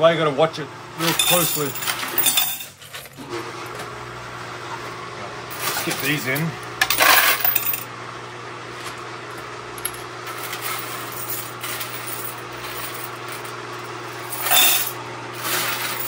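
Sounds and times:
coin counter motor hum: 0.8s - 16.0s
coins rattling: 1.0s - 3.1s, 5.6s - 7.9s, 9.8s - 16.0s
coins clicking: 1.1s - 2.8s, 6.8s - 7.8s, 9.8s - 13.5s, 14.2s - 16.0s.

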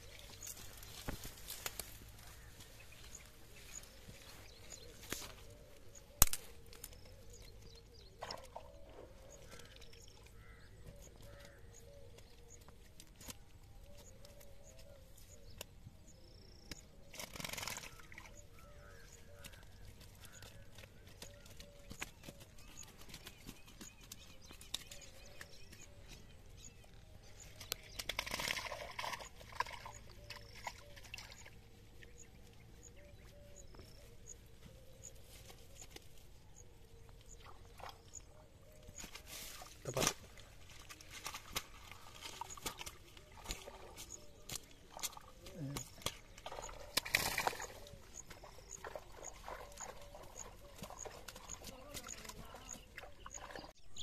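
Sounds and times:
net and dry grass rustling: 0.0s - 7.0s, 39.0s - 52.6s
faint small animal calls: 45.2s - 53.7s.

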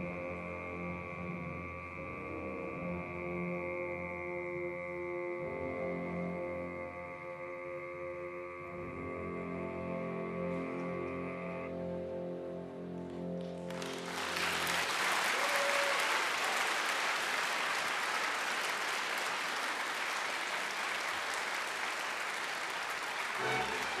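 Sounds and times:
audience applauding: 13.5s - 24.0s.

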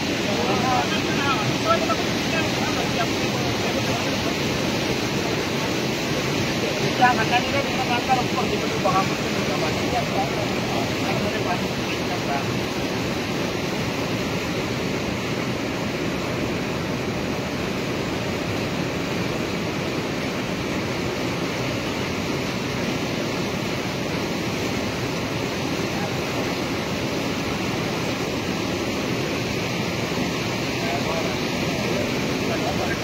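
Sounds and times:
mountain stream rushing: 0.0s - 33.0s.

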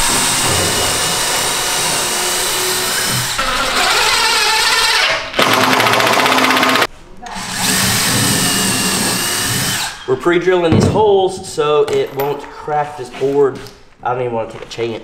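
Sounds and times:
power drill running: 0.0s - 10.1s.

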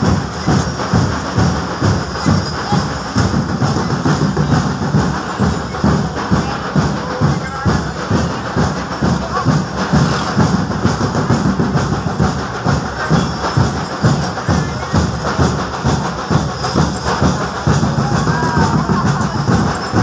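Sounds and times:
heavy bass drum beats: 0.0s - 20.0s
loud drumming: 0.0s - 20.0s.

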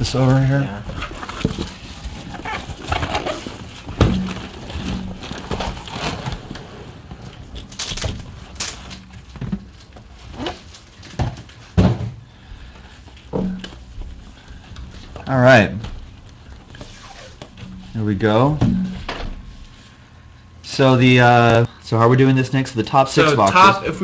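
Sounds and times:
cardboard boxes scraping: 0.9s - 7.1s
boxes knocking: 1.3s - 6.5s, 13.3s - 14.2s, 17.4s - 19.5s.

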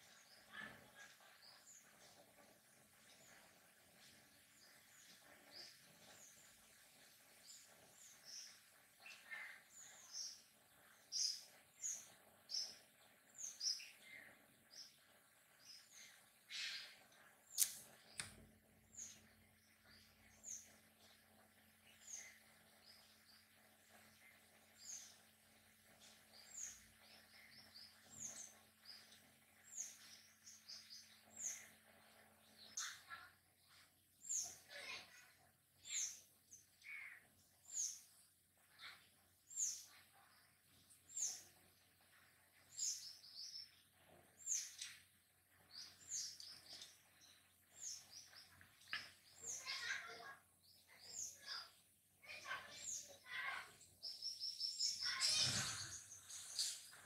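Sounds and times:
high bird chirps: 50.9s - 57.0s.

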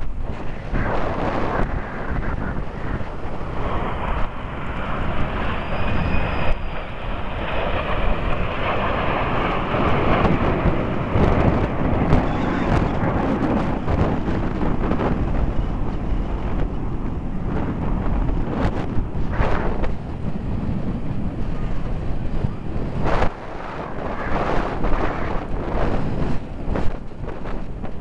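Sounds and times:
jets passing overhead: 0.0s - 28.0s
wind buffeting microphone: 0.0s - 28.0s.

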